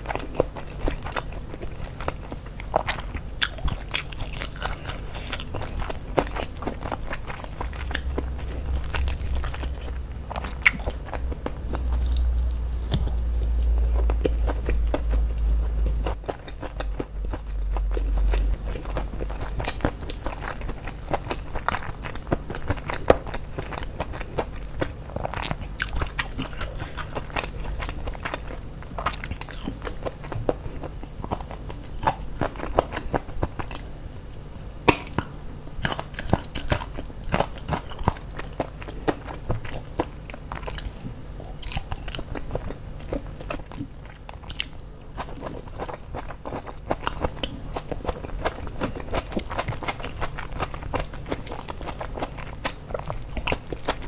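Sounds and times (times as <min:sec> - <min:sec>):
crunchy chewing: 0:00.0 - 0:54.0
low rumble: 0:04.6 - 0:21.1.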